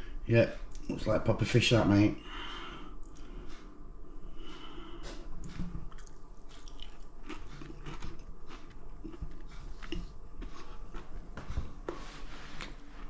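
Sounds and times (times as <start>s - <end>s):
person chewing crunchy food: 4.3s - 13.0s.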